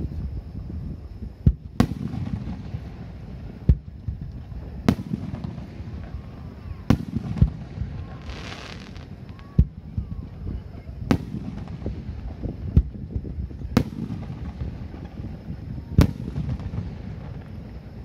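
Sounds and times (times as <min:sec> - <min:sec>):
firework shells bursting: 0:06.9 - 0:10.0.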